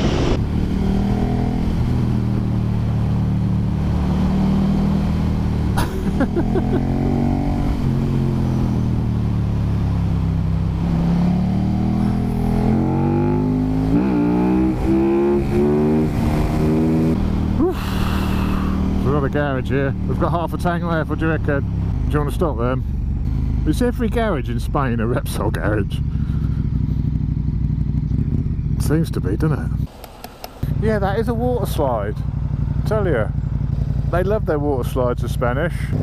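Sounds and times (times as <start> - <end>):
wind noise: 0.0 - 11.3
motorcycle engine revving: 0.0 - 36.0.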